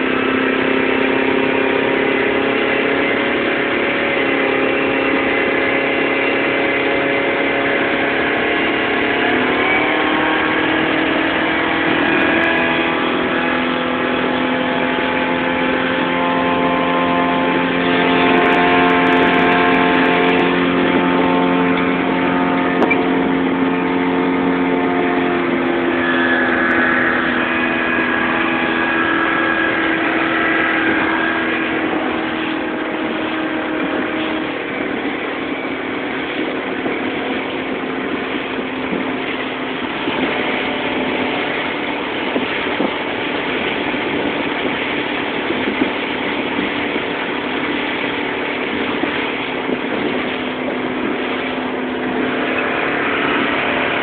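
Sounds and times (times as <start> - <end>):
outboard motor running: 0.0 - 54.0
water rushing: 0.0 - 54.0
wind: 0.0 - 54.0.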